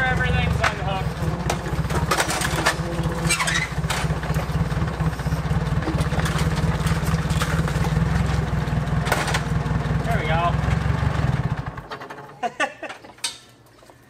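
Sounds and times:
engine idling: 0.0s - 12.5s
metallic knocks and clatter: 0.5s - 4.5s, 11.9s - 13.6s.

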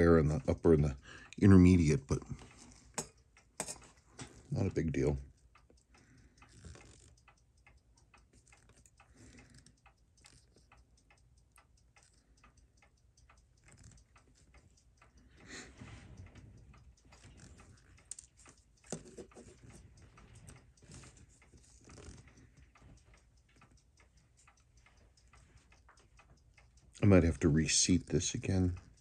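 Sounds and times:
tweezers ticking clicks: 0.0s - 29.0s
soft handling noise: 15.7s - 26.4s.

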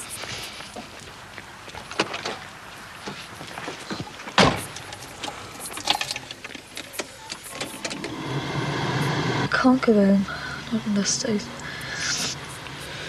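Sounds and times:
car door slamming: 4.4s - 4.7s.

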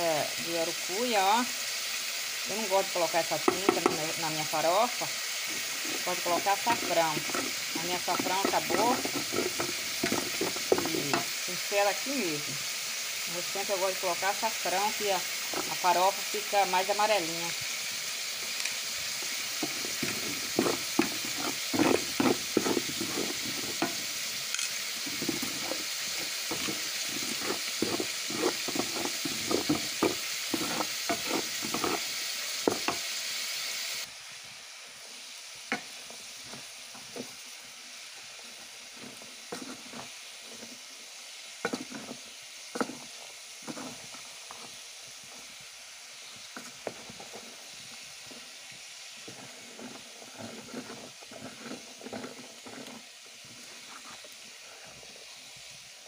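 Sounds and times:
onion sizzling in a pan: 0.0s - 56.0s
wooden spoon clicking and scraping: 5.8s - 11.3s, 19.6s - 33.0s.

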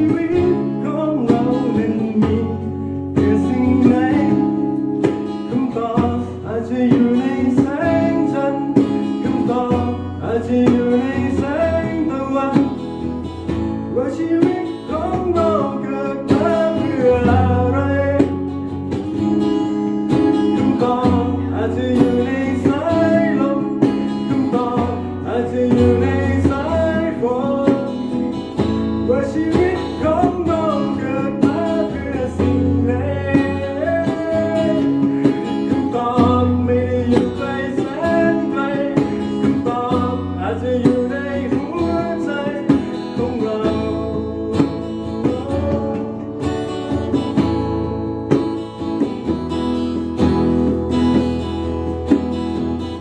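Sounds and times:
lap steel guitar sliding melody: 0.0s - 38.8s
man singing: 0.0s - 47.9s
strummed acoustic guitar: 0.0s - 53.0s.

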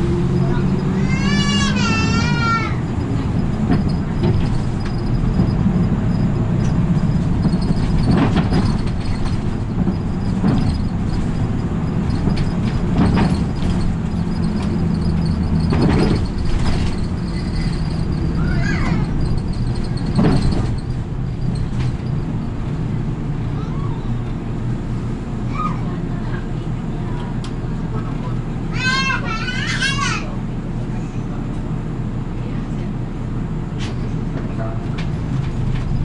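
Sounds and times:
bus engine and road noise: 0.0s - 36.0s
short rattles and knocks: 2.8s - 22.8s
brief squeak: 13.2s - 22.2s.

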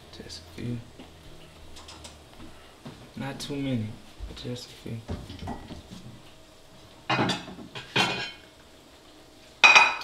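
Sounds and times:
kitchenware clattering: 5.1s - 5.9s, 7.1s - 8.5s, 9.6s - 10.0s.

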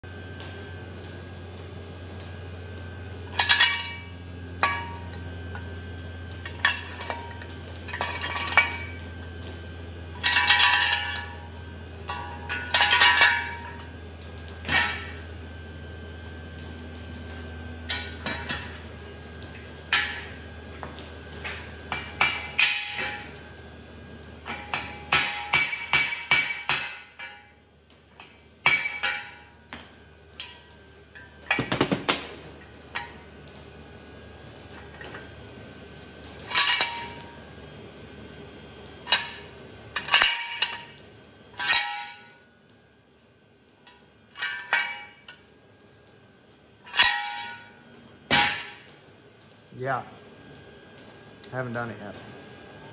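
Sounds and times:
hammer striking metal: 24.7s - 27.4s.

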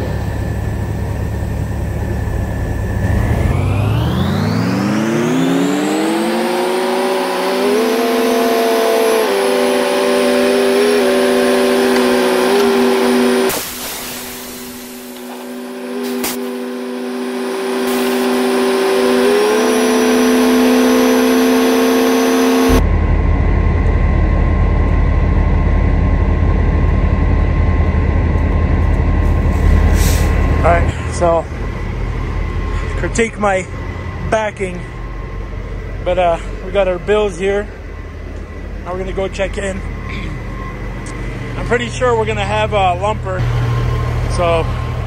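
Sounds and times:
steady low rumble: 0.0s - 5.0s, 22.7s - 45.0s
diesel engine revving: 0.0s - 45.0s.

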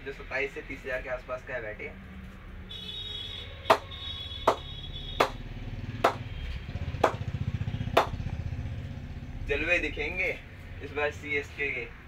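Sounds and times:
ball knocking on cricket bat: 4.5s - 5.4s, 6.0s - 6.2s, 7.0s - 7.2s, 8.0s - 8.2s.

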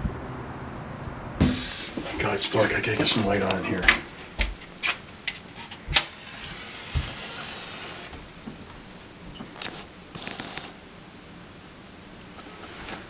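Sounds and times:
match flaring with a hiss: 1.4s - 2.1s.

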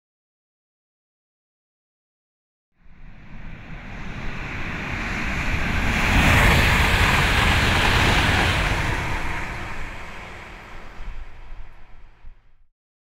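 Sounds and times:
rushing whoosh with low rumble: 2.8s - 12.7s.

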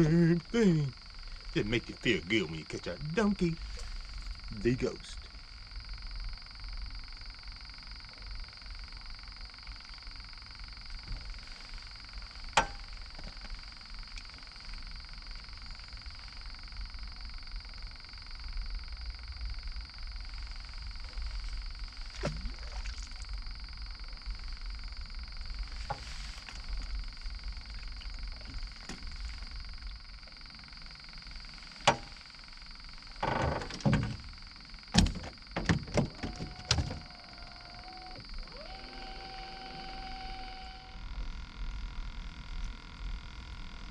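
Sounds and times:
frogs calling in chorus: 25.8s - 41.0s.

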